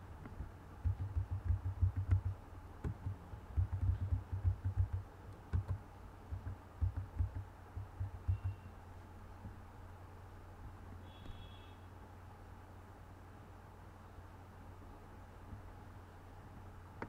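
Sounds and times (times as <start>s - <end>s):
keyboard typing thuds: 0.3s - 8.6s.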